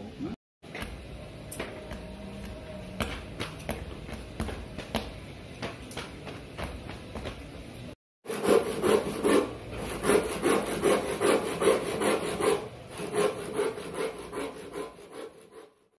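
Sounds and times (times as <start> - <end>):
hand saw cutting wood: 8.3 - 16.0.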